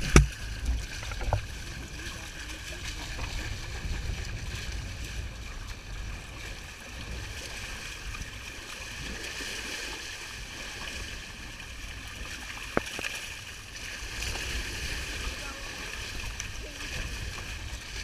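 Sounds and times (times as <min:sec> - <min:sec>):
wind buffeting microphone: 0:00.0 - 0:09.3, 0:14.0 - 0:18.0
water rushing along hull: 0:00.0 - 0:18.0.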